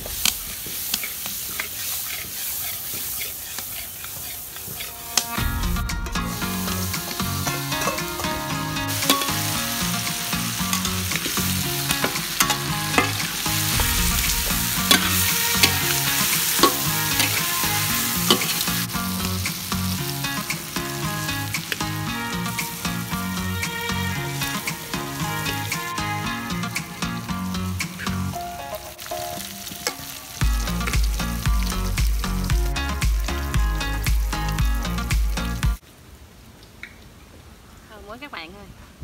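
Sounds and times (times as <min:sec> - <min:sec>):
meat sizzling in butter: 0:00.0 - 0:05.6, 0:06.2 - 0:35.6
metal spatula scraping wok: 0:00.0 - 0:27.2.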